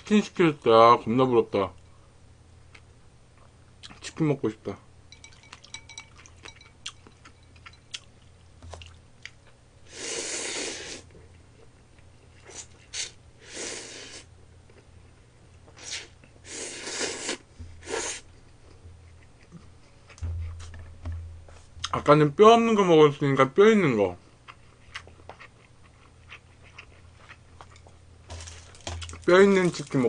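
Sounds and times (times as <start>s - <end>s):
chewing: 5.3s - 9.6s, 24.4s - 29.9s.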